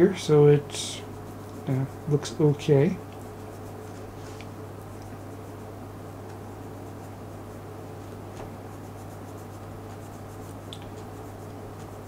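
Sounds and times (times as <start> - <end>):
steady low hum: 0.0 - 12.0
scratchy rubbing: 1.0 - 5.8, 6.5 - 12.0
small ticks: 4.4 - 5.5, 10.4 - 12.0.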